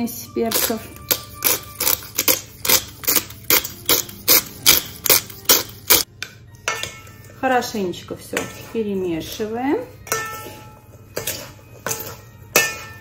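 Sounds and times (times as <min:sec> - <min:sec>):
pepper mill grinding: 0:00.4 - 0:06.1.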